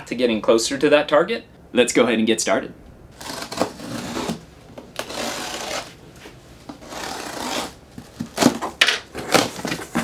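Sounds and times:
utility knife slicing packing tape: 3.2 - 4.4, 5.0 - 5.9, 6.8 - 8.6
cardboard flaps rustling: 5.0 - 10.0.

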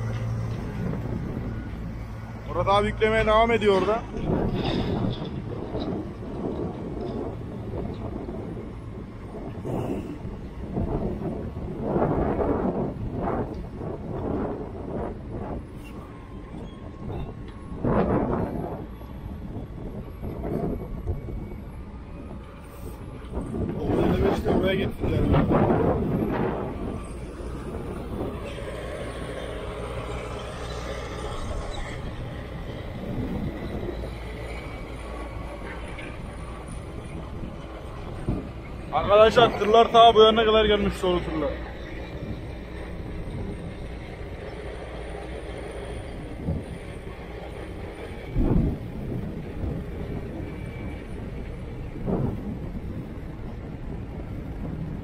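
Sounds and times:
steel tracks squealing and clanking: 0.0 - 54.9
excavators rumbling: 0.0 - 55.0
heavy diesel machines running: 0.0 - 55.0.

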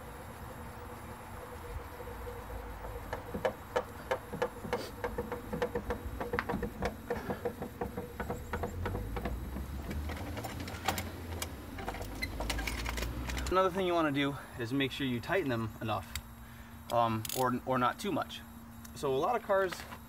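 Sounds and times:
scissor jack cranking and clicking: 17.2 - 17.5.

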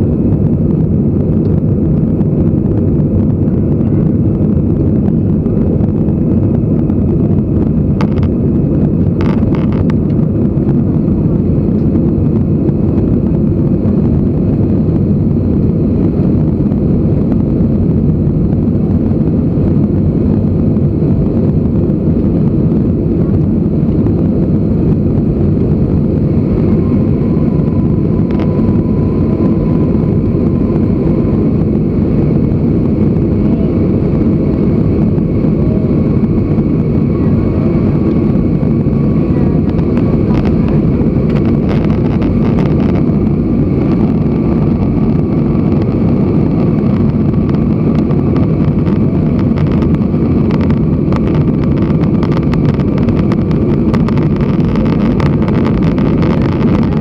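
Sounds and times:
faint high whine: 0.0 - 57.0
jet engine rumble in cabin: 0.0 - 57.0.

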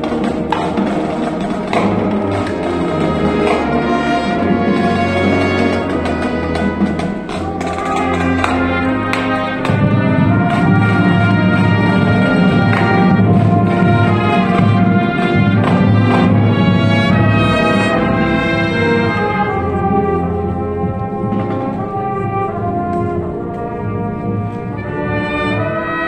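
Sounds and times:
sharp percussion hits: 0.0 - 19.0
brass section playing chords: 0.0 - 26.0.

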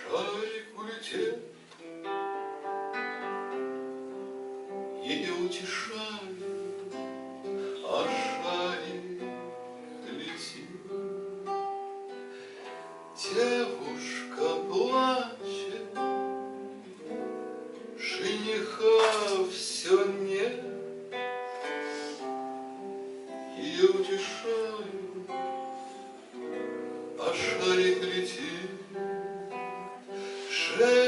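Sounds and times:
acoustic guitar: 0.0 - 31.0
person singing: 13.2 - 16.2, 18.0 - 21.0, 23.5 - 25.9, 27.1 - 31.0.

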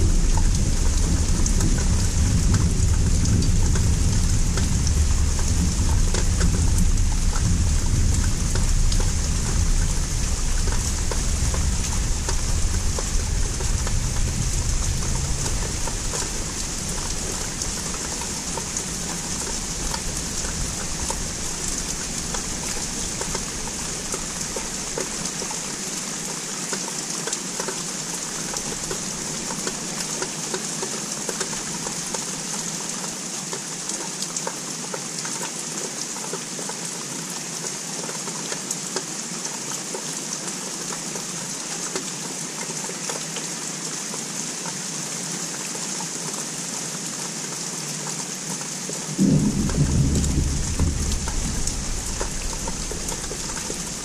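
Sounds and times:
distant thunder rumble: 0.0 - 24.7, 49.2 - 54.0
steady rain falling: 0.0 - 54.0.

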